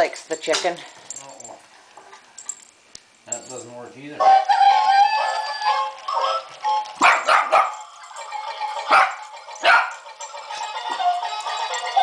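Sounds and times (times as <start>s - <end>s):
toy playing electronic tune: 4.2s - 7.0s, 8.1s - 12.0s
small dog barking: 7.0s - 7.8s, 8.9s - 10.0s.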